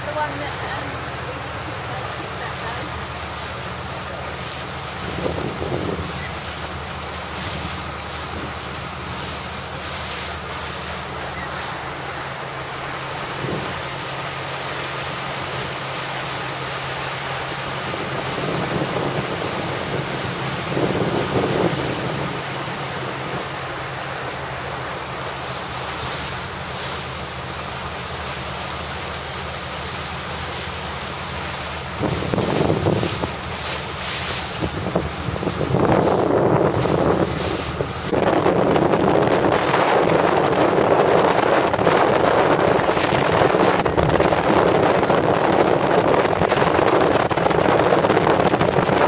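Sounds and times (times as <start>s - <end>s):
boat engine drone: 0.0s - 49.0s
water rushing past hull: 0.0s - 49.0s
wind buffeting microphone: 4.5s - 10.0s, 17.5s - 24.3s, 31.8s - 49.0s.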